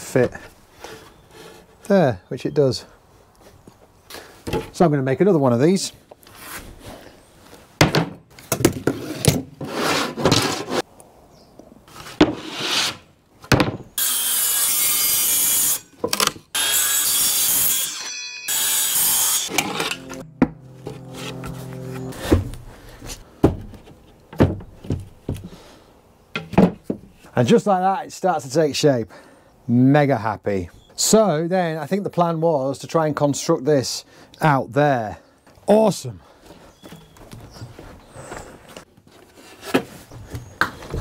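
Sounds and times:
plywood knocking and scraping: 0:11.9 - 0:13.9, 0:20.4 - 0:25.6, 0:26.3 - 0:27.3
circular saw cutting plywood: 0:16.6 - 0:23.1.

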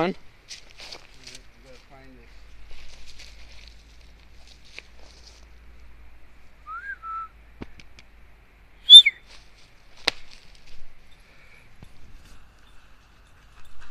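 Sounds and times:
person whistling: 0:06.7 - 0:07.3, 0:08.9 - 0:09.2.

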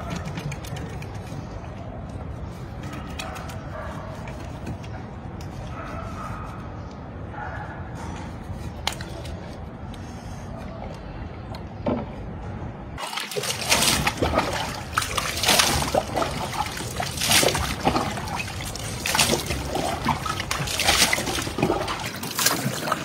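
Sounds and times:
water splashing on stone floor: 0:13.0 - 0:23.0.

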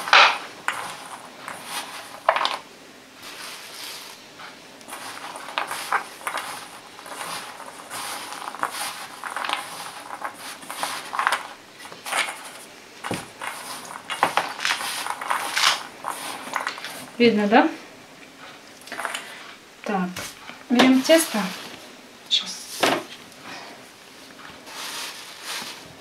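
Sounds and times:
raisins rustling in metal bowl: 0:00.0 - 0:17.8, 0:18.5 - 0:23.2, 0:24.2 - 0:26.0.

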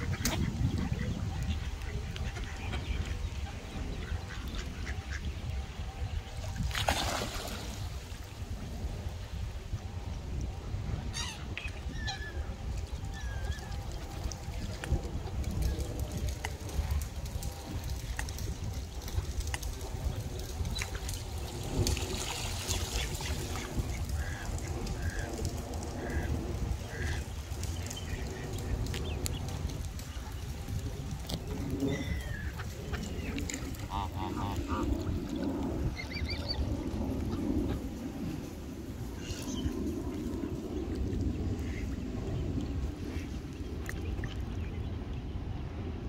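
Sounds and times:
ducks quacking: 0:00.0 - 0:05.5, 0:22.3 - 0:29.2, 0:31.9 - 0:35.2, 0:41.6 - 0:42.0
lake water splashing and trickling: 0:00.0 - 0:45.7
wind rumbling on microphone: 0:00.0 - 0:46.0
water splashing: 0:06.5 - 0:08.3
waterbird calls: 0:11.1 - 0:14.4, 0:22.2 - 0:30.6, 0:31.3 - 0:36.6.

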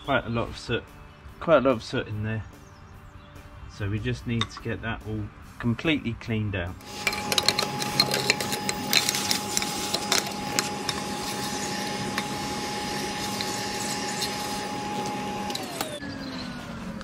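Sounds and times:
debris rattling up metal wand: 0:06.8 - 0:15.4
vacuum cleaner whining: 0:06.8 - 0:17.0.

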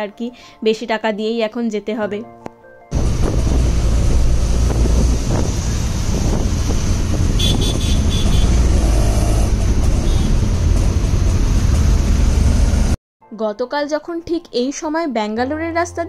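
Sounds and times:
auto-rickshaw engine rumble: 0:02.9 - 0:13.0.

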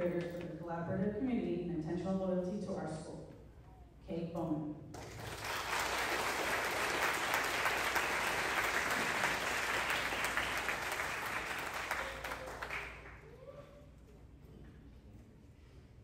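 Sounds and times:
audience applause: 0:05.0 - 0:13.4.

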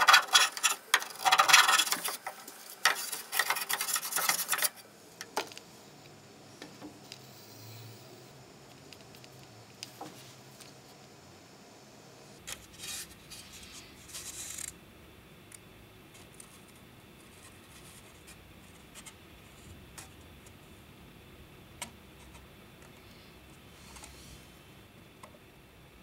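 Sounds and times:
plywood scraping on wood: 0:00.0 - 0:04.8.

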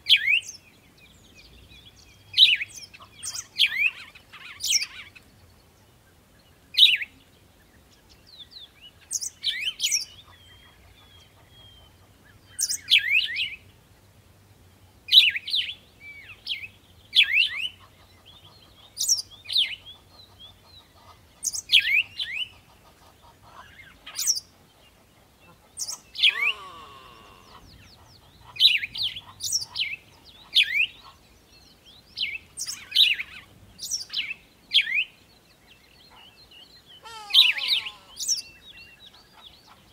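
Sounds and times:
bird chirping: 0:00.0 - 0:14.2, 0:14.8 - 0:39.9
longer falling bird call: 0:26.1 - 0:27.9, 0:36.9 - 0:38.6.

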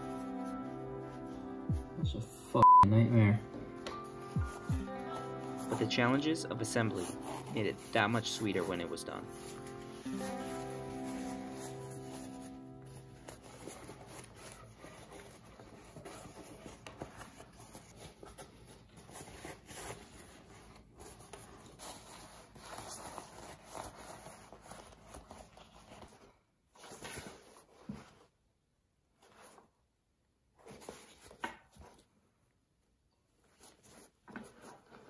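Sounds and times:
shell fabric rustling: 0:03.9 - 0:28.4.

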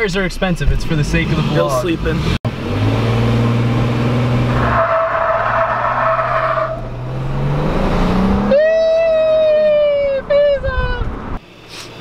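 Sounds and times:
car engine revving: 0:00.8 - 0:10.0
tires squealing: 0:01.2 - 0:11.4.

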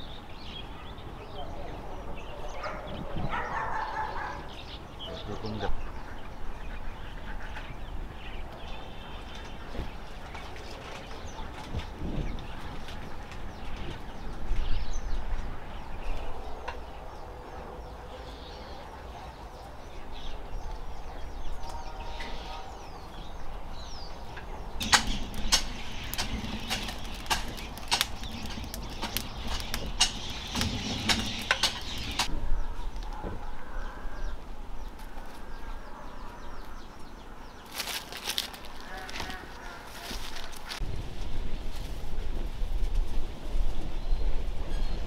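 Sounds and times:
small birds chirping: 0:00.0 - 0:41.5
low outdoor rumble: 0:04.5 - 0:45.0
hands crackling in dry soil: 0:24.8 - 0:32.3, 0:37.6 - 0:43.1.

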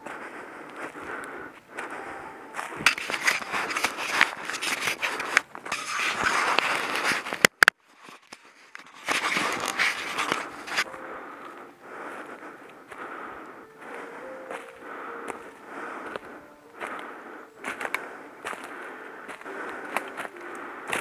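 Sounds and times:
camera rubbing against clothing: 0:02.7 - 0:10.9.

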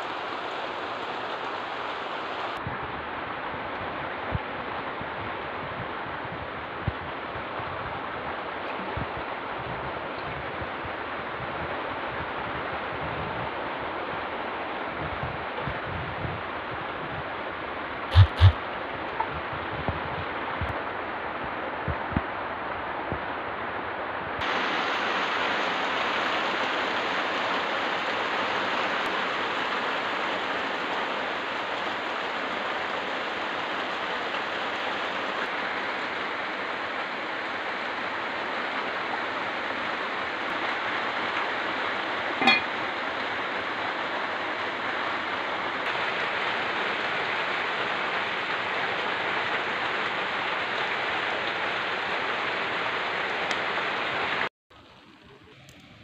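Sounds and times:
rain falling: 0:00.0 - 0:56.0
sharp knock: 0:18.1 - 0:18.6.

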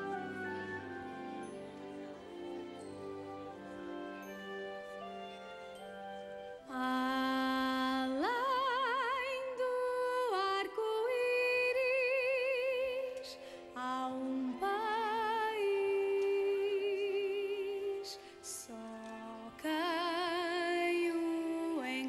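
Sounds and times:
musical backing: 0:00.0 - 0:22.0
woman singing with vibrato: 0:06.7 - 0:22.0.

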